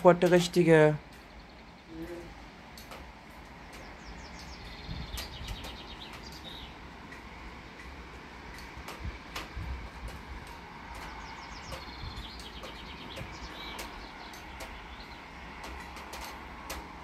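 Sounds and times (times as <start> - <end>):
songbirds chirping and trilling: 0.0 - 17.0
wind on the microphone: 4.0 - 6.8, 8.5 - 16.9.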